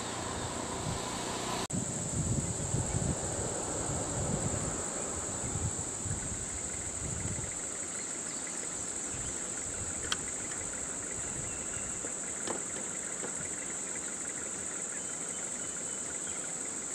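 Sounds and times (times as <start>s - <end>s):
engine idling rumble: 0.0s - 16.2s
insects droning: 0.0s - 16.9s.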